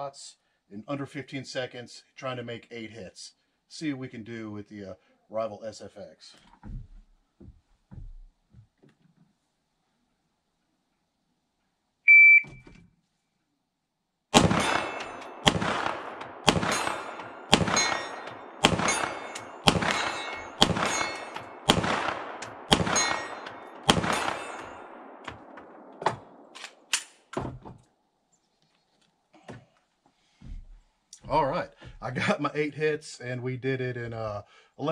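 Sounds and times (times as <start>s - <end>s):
shot timer beep: 12.1s - 12.6s
pistol shots echoing: 14.4s - 27.0s.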